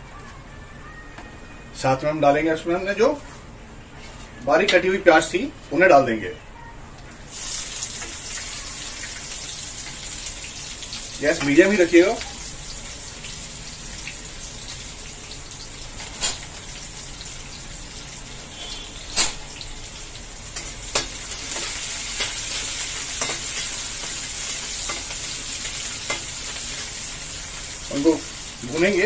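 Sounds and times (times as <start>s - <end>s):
onions sizzling in oil: 7.2s - 29.0s
metal spatula stirring in pan: 20.0s - 27.7s.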